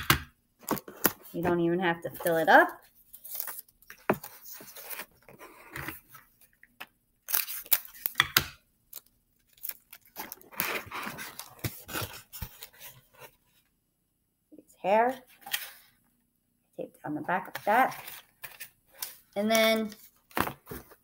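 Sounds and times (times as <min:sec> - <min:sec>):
paper rustling and crinkling: 0:02.2 - 0:06.4, 0:09.0 - 0:13.6.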